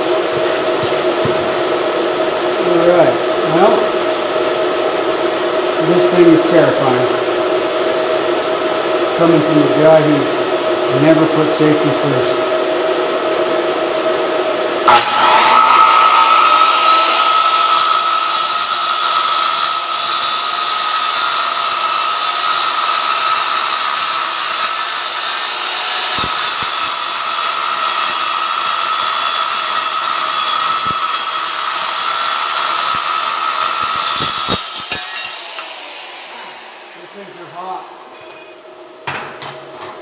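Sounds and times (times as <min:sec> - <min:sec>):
circular saw cutting steel: 0:14.8 - 0:38.7.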